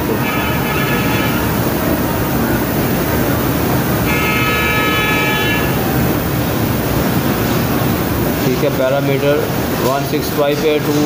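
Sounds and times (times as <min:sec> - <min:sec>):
street noise: 0:00.0 - 0:11.0
vehicle horn toot: 0:00.1 - 0:01.6, 0:04.0 - 0:05.8.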